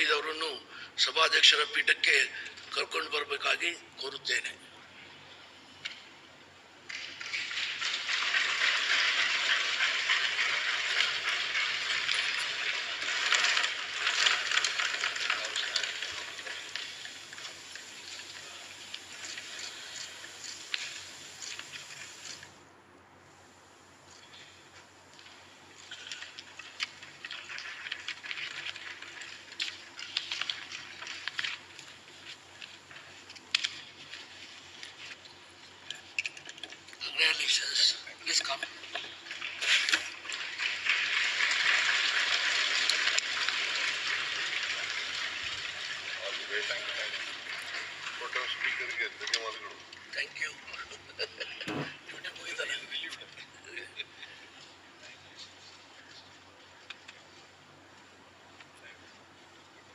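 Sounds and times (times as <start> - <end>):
crowd applause: 7.7 - 16.6.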